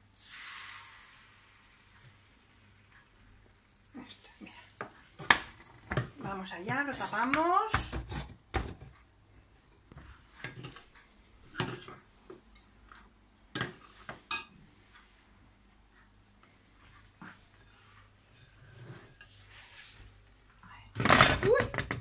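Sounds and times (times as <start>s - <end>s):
kitchen utensils clinking: 21.0s - 22.0s.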